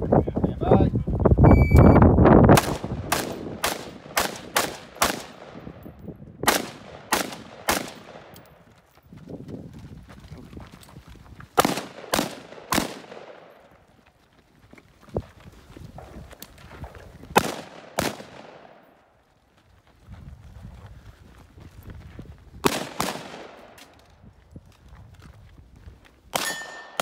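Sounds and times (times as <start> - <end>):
rifle shots: 2.5 - 5.8, 6.4 - 8.4, 11.6 - 13.6, 17.3 - 18.9, 22.6 - 23.8, 26.3 - 27.0
gunshots with short echo: 2.5 - 8.4, 11.6 - 13.7, 17.3 - 18.9, 22.6 - 23.8.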